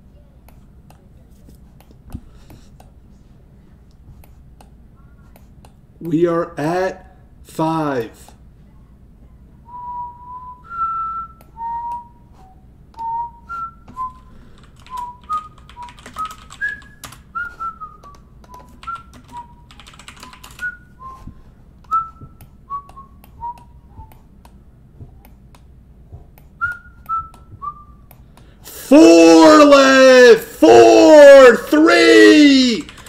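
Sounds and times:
person whistling a tune: 0:09.7 - 0:19.7, 0:20.3 - 0:24.2, 0:26.6 - 0:28.1.

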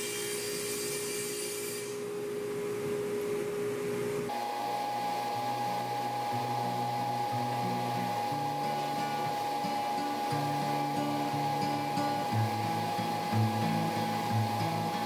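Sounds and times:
table saw cutting hiss: 0:00.0 - 0:02.1, 0:04.4 - 0:15.0
table saw whine: 0:00.0 - 0:02.2, 0:04.3 - 0:15.0
plucked guitar music: 0:05.4 - 0:15.0.

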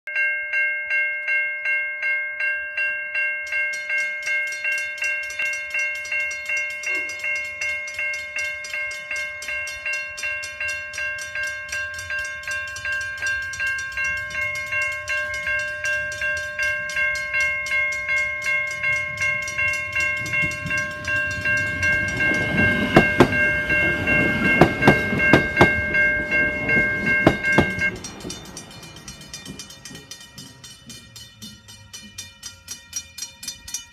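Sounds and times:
level crossing warning bell: 0:00.1 - 0:33.9
train wheels clacking over rail joints: 0:11.3 - 0:33.9.

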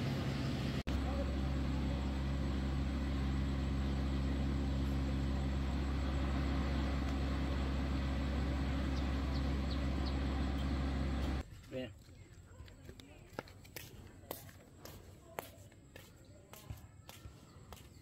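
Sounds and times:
engine idling: 0:00.0 - 0:11.4.

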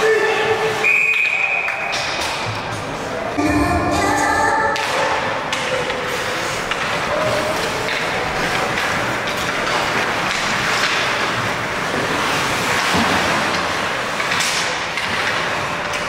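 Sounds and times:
arena crowd noise: 0:00.0 - 0:10.3
skate blades scraping ice: 0:05.9 - 0:16.0.

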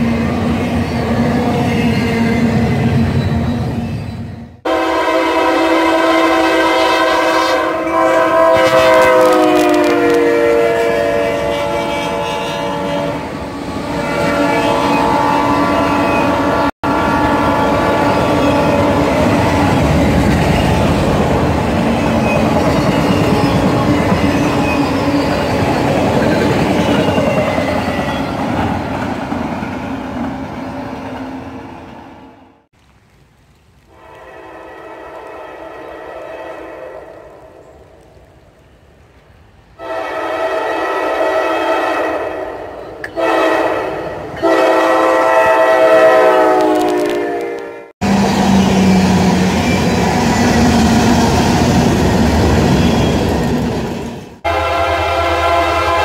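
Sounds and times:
train air horn: 0:04.6 - 0:13.3, 0:13.9 - 0:19.8, 0:33.9 - 0:37.7, 0:39.8 - 0:49.6, 0:54.4 - 0:56.0.

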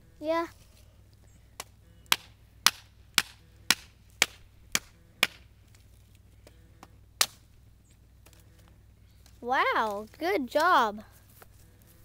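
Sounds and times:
hatchet chopping firewood: 0:01.6 - 0:05.5, 0:06.8 - 0:07.5.

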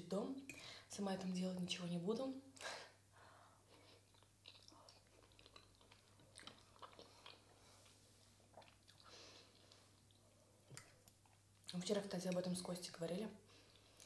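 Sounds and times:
faint chewing: 0:03.6 - 0:12.5, 0:13.5 - 0:14.0.

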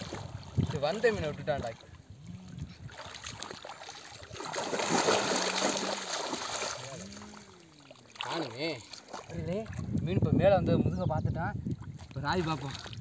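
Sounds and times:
water splashing: 0:00.0 - 0:10.1, 0:11.8 - 0:13.0
hands thrashing in water: 0:02.9 - 0:06.8.

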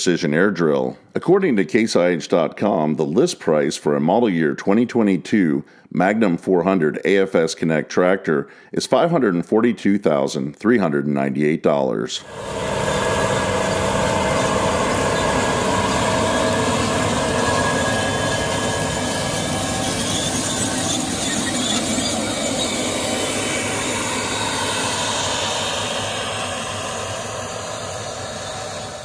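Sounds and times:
drill running through ground: 0:12.2 - 0:29.0
tractor diesel engine under load: 0:12.3 - 0:26.4.

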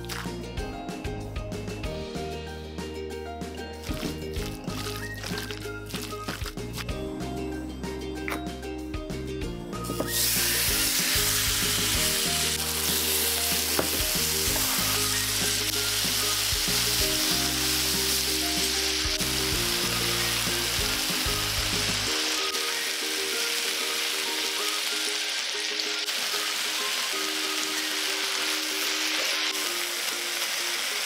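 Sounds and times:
meat sizzling in a wok: 0:10.0 - 0:31.0.

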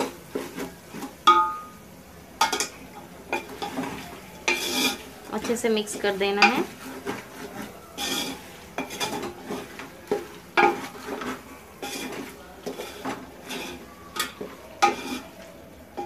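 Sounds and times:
oil sizzling: 0:00.0 - 0:16.0
spoon scraping a steel pot: 0:03.3 - 0:15.4.

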